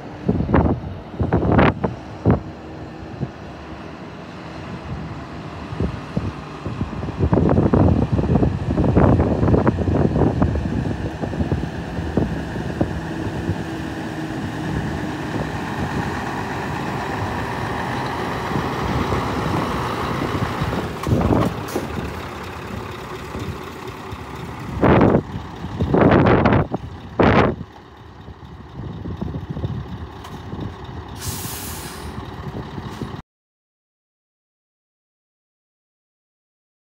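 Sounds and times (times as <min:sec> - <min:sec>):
diesel truck engine running: 0:00.0 - 0:33.2
air brake hiss: 0:31.2 - 0:32.2.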